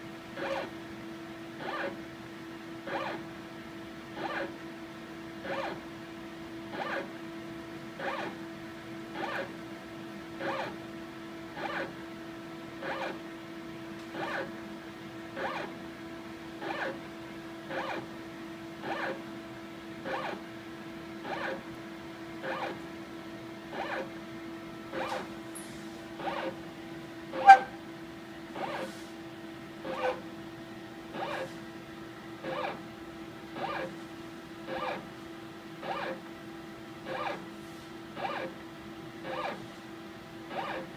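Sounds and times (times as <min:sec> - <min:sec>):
motorized stage whirring: 0:00.0 - 0:00.7, 0:01.6 - 0:02.0, 0:02.8 - 0:03.2, 0:04.2 - 0:04.5, 0:05.4 - 0:05.8, 0:06.7 - 0:07.1, 0:08.0 - 0:08.4, 0:09.2 - 0:09.6, 0:10.4 - 0:10.8, 0:11.6 - 0:12.0, 0:12.8 - 0:13.2, 0:14.0 - 0:14.5, 0:15.3 - 0:15.8, 0:16.6 - 0:17.0, 0:17.6 - 0:18.1, 0:18.8 - 0:19.2, 0:20.0 - 0:20.4, 0:21.2 - 0:21.7, 0:22.4 - 0:22.8, 0:23.7 - 0:24.1, 0:24.9 - 0:26.6, 0:27.3 - 0:27.8, 0:28.5 - 0:29.1, 0:29.8 - 0:30.2, 0:31.1 - 0:31.6, 0:32.4 - 0:32.8, 0:33.5 - 0:34.0, 0:34.6 - 0:35.1, 0:35.8 - 0:36.3, 0:37.0 - 0:38.6, 0:39.2 - 0:39.6, 0:40.5 - 0:40.9
steady hum: 0:05.6 - 0:40.9.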